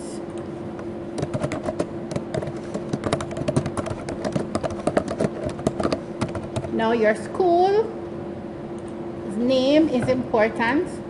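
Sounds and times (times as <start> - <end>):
steady low hum: 0.0 - 11.0
typing on keyboard: 1.2 - 6.8.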